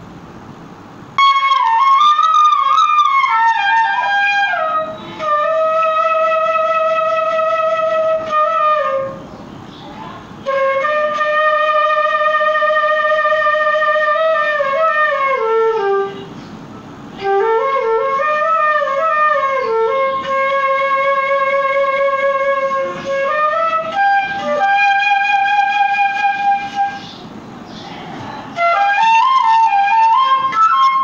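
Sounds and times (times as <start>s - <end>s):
solo melody with sliding runs: 1.1s - 9.2s, 10.4s - 16.3s, 17.1s - 27.1s, 28.6s - 31.0s.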